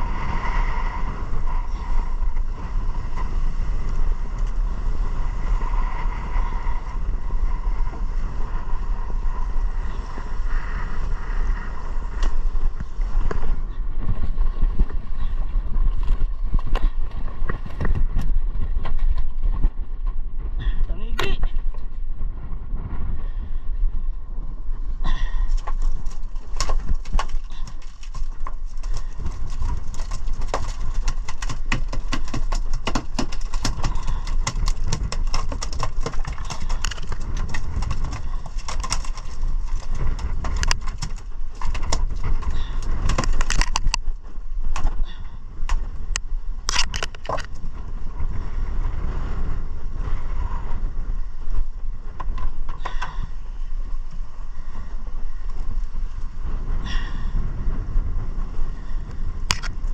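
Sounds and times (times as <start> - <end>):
boat engine rumble: 0.0 - 59.9
wind on microphone: 0.0 - 59.9
hull slapping waves: 25.1 - 51.7.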